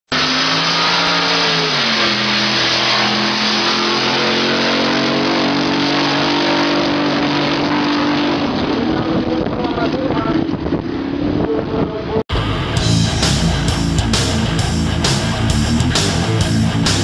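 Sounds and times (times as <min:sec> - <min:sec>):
racing boat engine high revs: 0:00.1 - 0:11.3.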